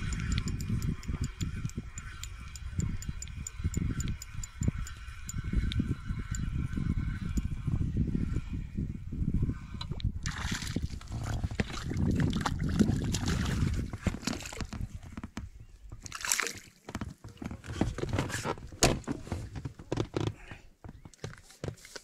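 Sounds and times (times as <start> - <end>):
water sloshing and splashing: 9.9 - 15.3, 15.9 - 19.6.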